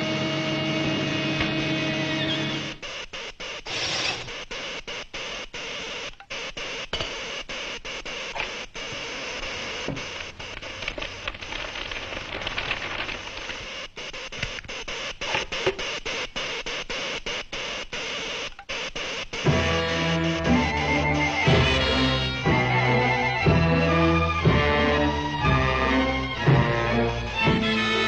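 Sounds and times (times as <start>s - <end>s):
cartoon machinery running: 1.7s - 23.4s.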